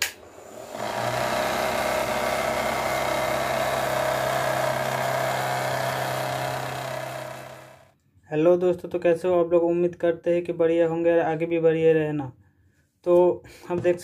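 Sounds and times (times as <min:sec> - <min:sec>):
small motor propeller whirring: 0:00.2 - 0:07.9.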